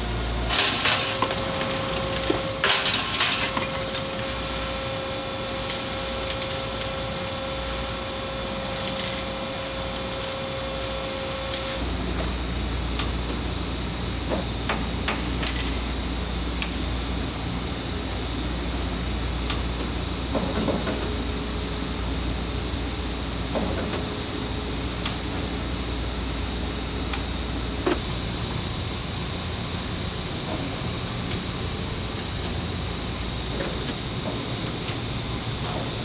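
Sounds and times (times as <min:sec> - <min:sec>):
factory machinery humming: 0:00.0 - 0:36.0
metallic clanks of steel parts: 0:00.5 - 0:04.1.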